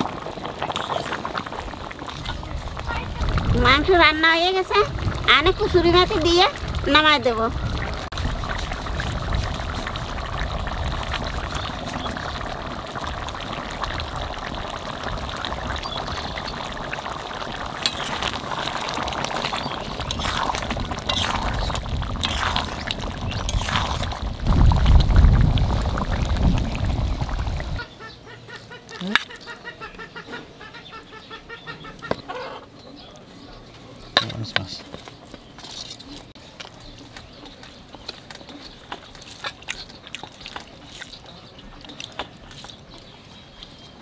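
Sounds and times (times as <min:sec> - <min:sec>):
curry simmering and bubbling: 0:00.0 - 0:27.9, 0:32.0 - 0:44.0
low rumble: 0:20.0 - 0:27.8.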